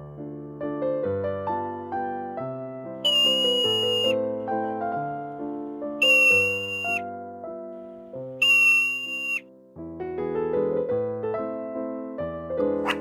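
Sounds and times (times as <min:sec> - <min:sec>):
gentle piano music: 0:00.0 - 0:08.4, 0:09.2 - 0:13.0
high animal alarm whistles: 0:03.1 - 0:04.2, 0:06.0 - 0:07.0, 0:08.4 - 0:09.4.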